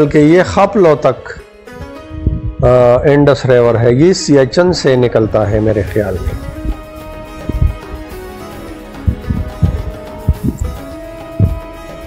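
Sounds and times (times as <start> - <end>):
low beats: 1.8 - 3.0, 4.6 - 12.0
sustained music notes: 4.4 - 12.0.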